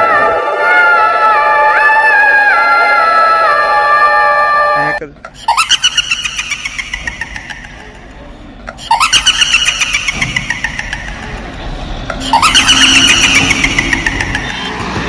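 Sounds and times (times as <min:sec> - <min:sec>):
pulsing siren wail: 0:00.0 - 0:05.0, 0:12.1 - 0:15.0
truck engine driving past: 0:10.1 - 0:15.0.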